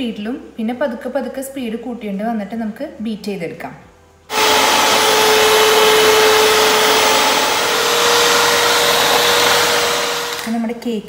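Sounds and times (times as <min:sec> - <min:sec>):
stand mixer whipping cream: 0:04.3 - 0:10.5.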